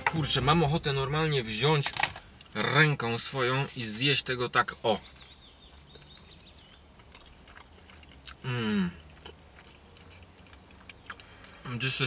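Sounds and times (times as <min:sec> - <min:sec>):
man chewing: 0:05.1 - 0:11.7
man humming mmm: 0:08.4 - 0:09.0.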